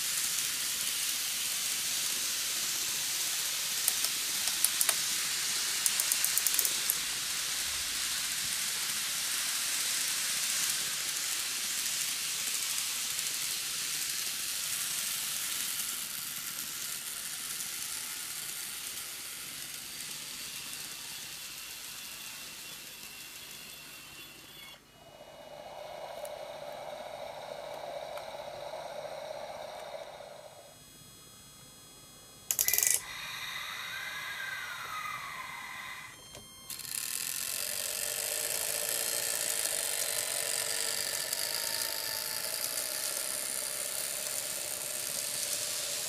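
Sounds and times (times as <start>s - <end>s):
model train running on track: 0.0s - 30.7s, 36.9s - 46.0s
mid-pitched hum with whines: 12.4s - 46.0s.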